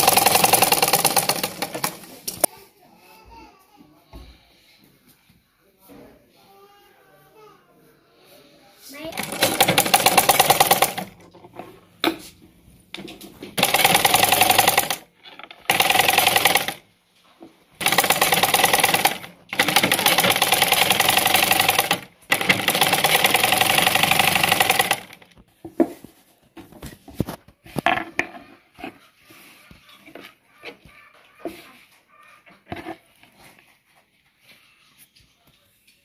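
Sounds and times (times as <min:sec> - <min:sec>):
sewing machine stitching: 0:00.0 - 0:02.5, 0:09.1 - 0:11.3, 0:13.4 - 0:16.8, 0:17.8 - 0:25.3.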